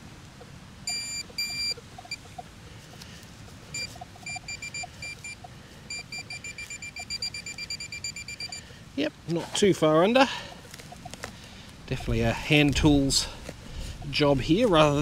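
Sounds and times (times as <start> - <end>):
metal detector beeping: 0.9 - 2.4, 3.7 - 8.7.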